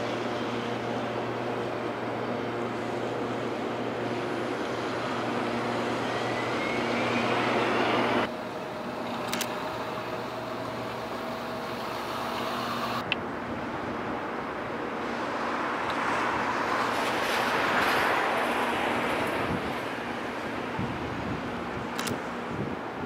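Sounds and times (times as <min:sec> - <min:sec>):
passing vehicles drone: 0:00.0 - 0:22.6
quiet street ambience: 0:00.0 - 0:23.0
rising whine: 0:03.0 - 0:13.1
sharp clicks: 0:09.1 - 0:09.6, 0:21.9 - 0:22.2.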